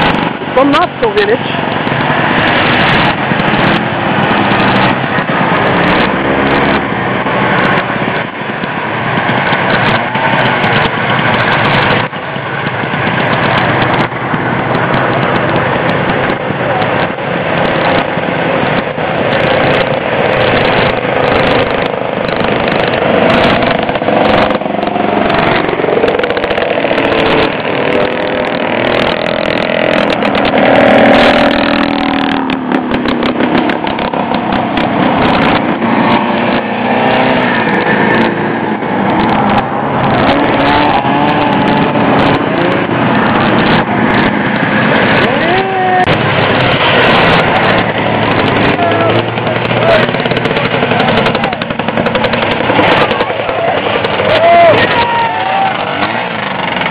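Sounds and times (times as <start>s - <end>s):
snowmobile engines revving: 0.0s - 56.9s.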